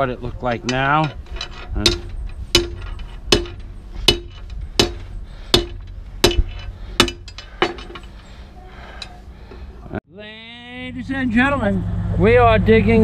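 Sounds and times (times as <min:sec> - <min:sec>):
sledgehammer clanking on steel: 0:00.4 - 0:08.3.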